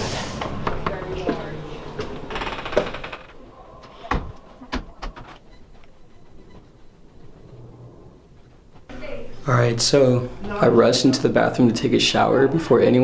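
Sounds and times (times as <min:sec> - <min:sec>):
door being pushed open: 0:02.1 - 0:05.5.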